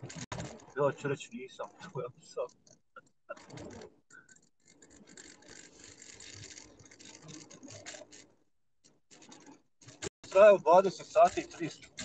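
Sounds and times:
car cabin road and engine noise: 0.0s - 4.1s, 9.1s - 12.0s
small clicks and rattles: 0.0s - 12.0s.

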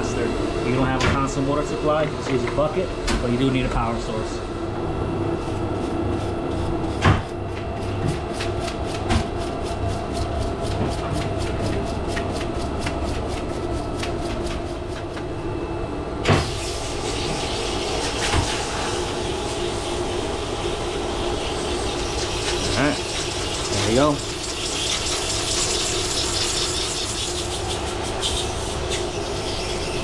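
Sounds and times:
machine hum: 0.0s - 30.0s.

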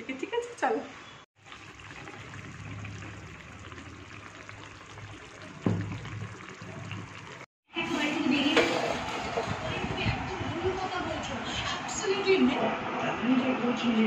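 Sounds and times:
gravy bubbling in a pan: 1.4s - 7.5s
knock: 5.6s - 6.2s.

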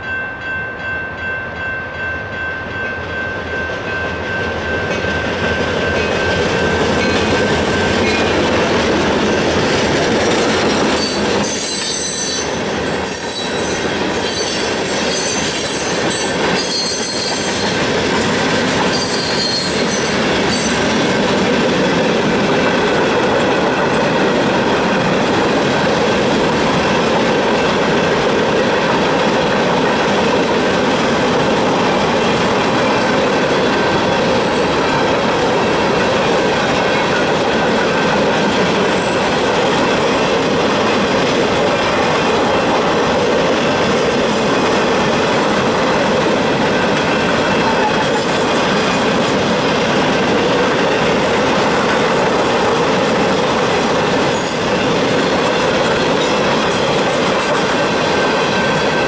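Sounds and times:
crossing bell ringing: 0.0s - 9.7s, 10.3s - 18.0s, 18.8s - 21.4s, 32.7s - 39.9s
train wheel clatter: 3.7s - 59.0s
high-pitched wheel squeal: 11.0s - 17.6s, 18.9s - 20.8s.

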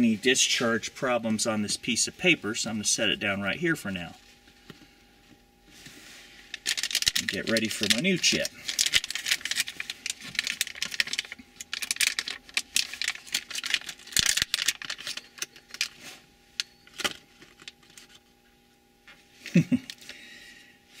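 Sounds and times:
plastic bag crinkling: 6.3s - 18.2s.

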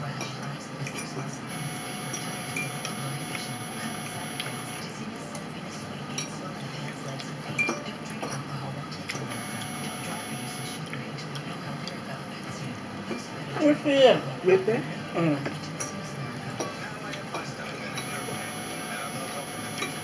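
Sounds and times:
steady background hum: 0.5s - 7.2s, 8.0s - 20.0s.

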